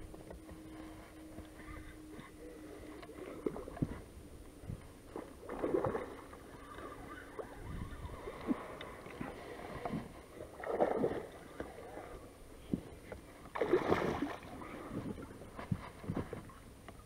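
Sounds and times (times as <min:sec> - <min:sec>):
fish splashing in water: 0:13.5 - 0:14.9.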